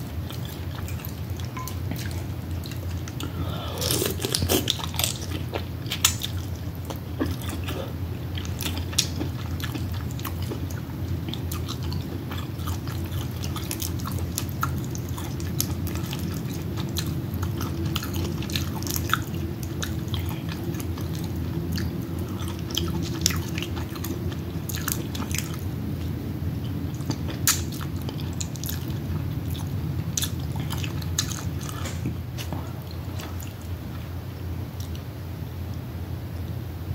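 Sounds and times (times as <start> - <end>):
low hum: 0.0 - 5.8
person chewing and smacking: 0.1 - 34.1.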